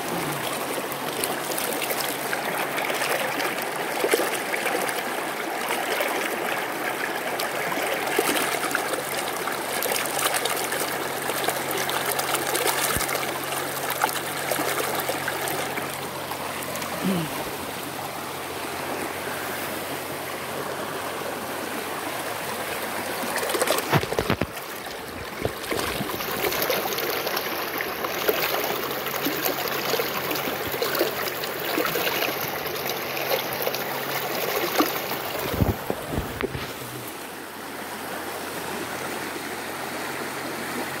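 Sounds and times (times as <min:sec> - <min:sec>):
creek rushing over rocks: 0:00.0 - 0:41.0.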